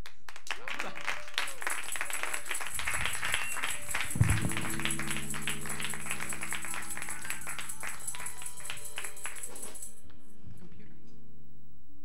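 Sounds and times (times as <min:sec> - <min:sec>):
audience applauding: 0:00.0 - 0:09.8
low sustained chord: 0:03.9 - 0:09.5
microphone thump: 0:04.2 - 0:06.2.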